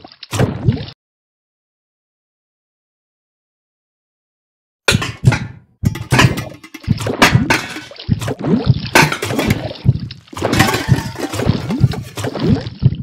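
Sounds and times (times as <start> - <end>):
wet squelching and splattering: 5.9 - 12.8.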